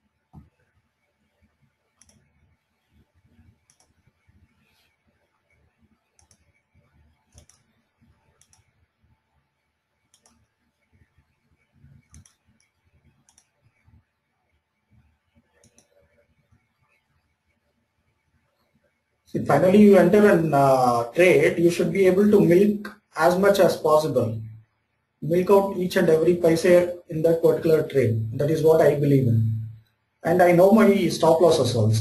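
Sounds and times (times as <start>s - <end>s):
faint scattered clicks: 2.0s - 2.3s, 3.7s - 4.0s, 6.2s - 6.6s, 7.3s - 7.8s, 8.4s - 8.7s, 10.1s - 10.5s, 12.0s - 13.6s, 15.6s - 16.0s.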